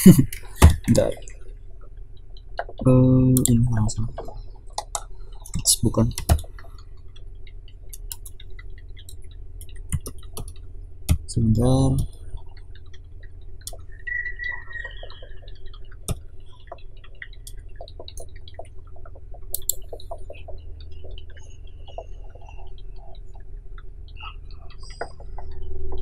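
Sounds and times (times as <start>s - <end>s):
steady low hum: 0.0s - 26.0s
mouse and keyboard clicks: 13.6s - 23.4s.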